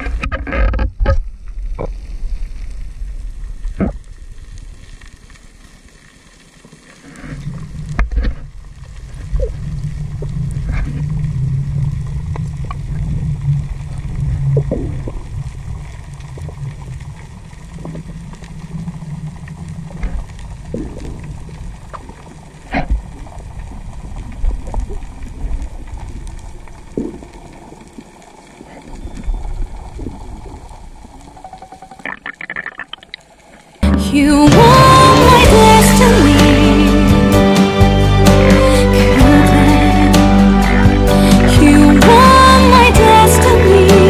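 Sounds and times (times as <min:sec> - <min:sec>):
muffled underwater rumble: 0:00.0 - 0:32.9, 0:33.6 - 0:44.0.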